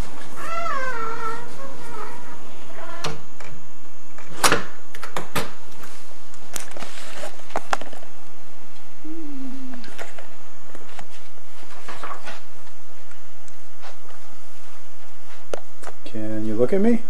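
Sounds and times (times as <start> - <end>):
short low whine: 7.2 - 11.6.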